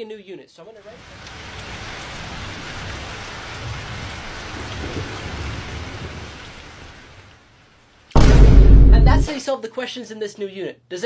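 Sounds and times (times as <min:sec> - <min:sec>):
steady rain: 0:00.8 - 0:08.2
low thunder rumble: 0:03.6 - 0:06.4, 0:08.2 - 0:09.3.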